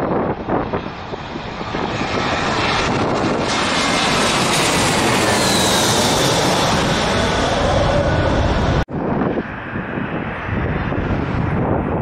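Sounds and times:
jet airliner passing overhead: 0.0s - 12.0s.

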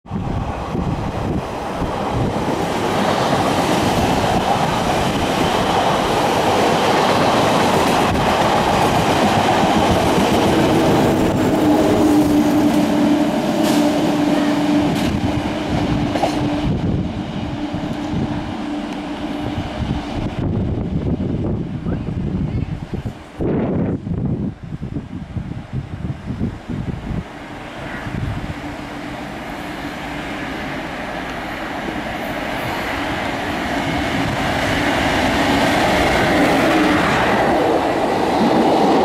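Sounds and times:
train wheels rumbling on rails: 0.0s - 39.0s.

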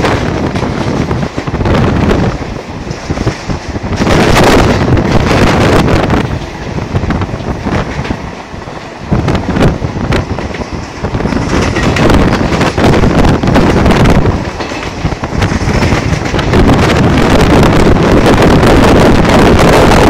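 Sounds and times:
train wheels rumbling on track: 0.0s - 20.0s
wind buffeting microphone: 0.0s - 20.0s.

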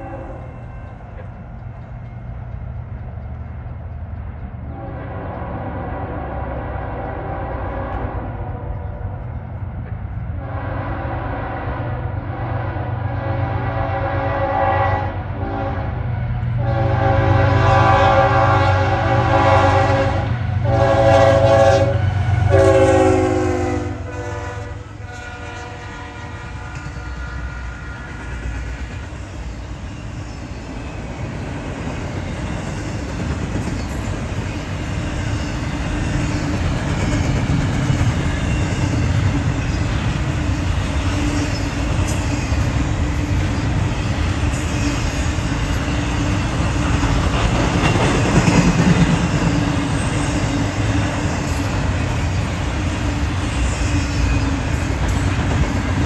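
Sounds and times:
train air horn blasts: 0.0s - 0.9s, 4.7s - 8.8s, 10.4s - 28.2s
train cars rumbling: 0.0s - 56.0s
wheels clattering on rail joints: 26.5s - 56.0s.

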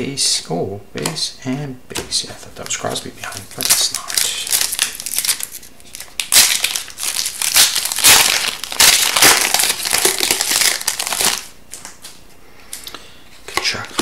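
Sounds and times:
foil wrapper crinkling: 2.6s - 12.9s
foil wrapper tearing: 3.2s - 12.1s.

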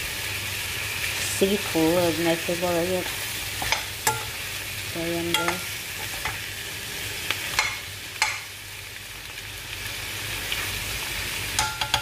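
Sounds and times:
prawns sizzling in a pan: 0.0s - 12.0s
utensil knocking against pan: 11.6s - 12.0s.

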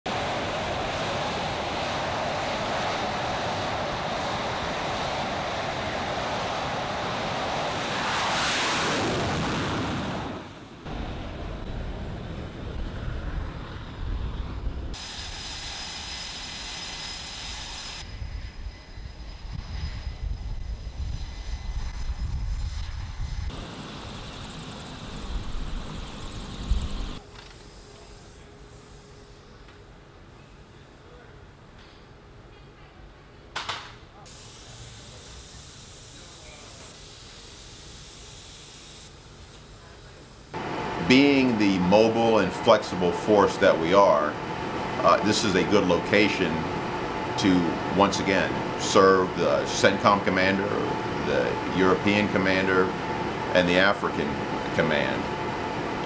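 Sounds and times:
fighter jet engines roaring: 0.1s - 27.2s, 40.5s - 56.0s.

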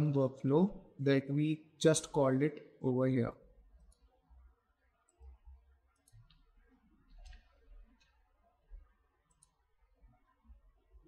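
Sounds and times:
faint computer mouse clicks: 6.0s - 6.5s.

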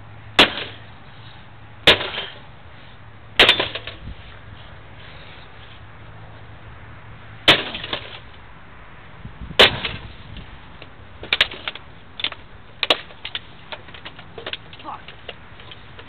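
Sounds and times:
pickaxe striking metal case: 1.9s - 2.4s, 3.4s - 4.0s.

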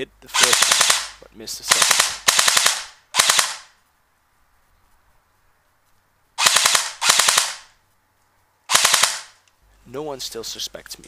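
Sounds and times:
airsoft gun full-auto bursts: 0.3s - 3.7s, 6.4s - 7.7s, 8.7s - 9.4s.

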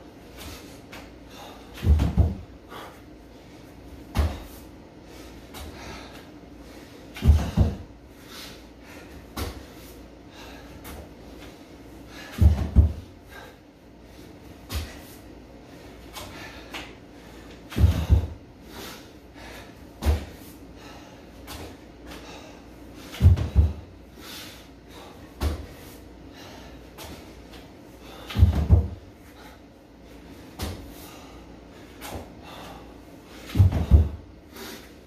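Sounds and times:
body thudding on gym mats: 1.8s - 2.5s, 7.2s - 7.9s, 12.3s - 13.1s, 17.7s - 18.4s, 23.1s - 23.9s, 28.2s - 29.1s, 33.5s - 34.2s.

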